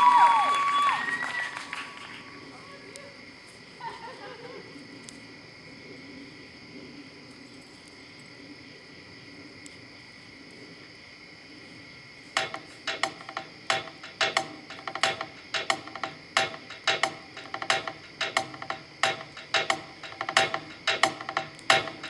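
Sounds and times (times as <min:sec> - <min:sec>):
crickets chirping: 0:00.0 - 0:22.0
percussion rhythm of sharp clicks: 0:12.4 - 0:22.0.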